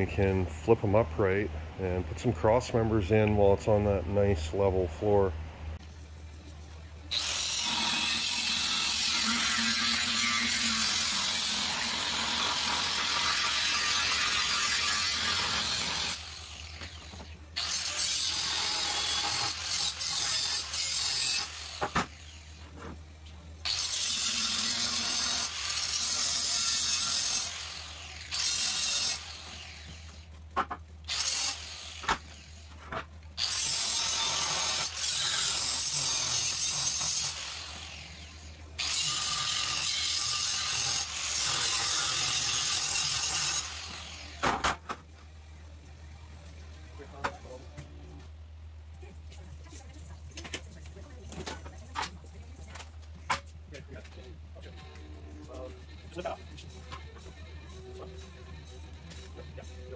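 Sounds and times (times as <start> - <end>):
angle grinder cutting steel: 7.1 - 22.6, 23.7 - 30.3, 31.1 - 32.7, 33.4 - 44.4.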